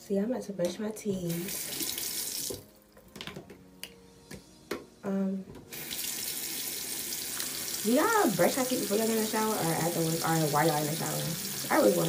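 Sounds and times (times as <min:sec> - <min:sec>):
sink tap running: 0:01.3 - 0:02.7, 0:05.7 - 0:12.0.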